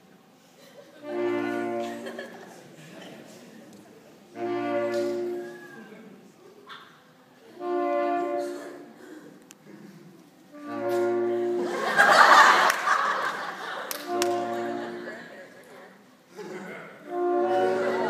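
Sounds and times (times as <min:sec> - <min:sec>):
audience noise: 0:00.0 - 0:18.0
saxophone ensemble held chords: 0:01.0 - 0:02.4, 0:04.3 - 0:05.6, 0:07.5 - 0:09.0, 0:10.5 - 0:12.0, 0:13.9 - 0:15.3, 0:17.0 - 0:18.0.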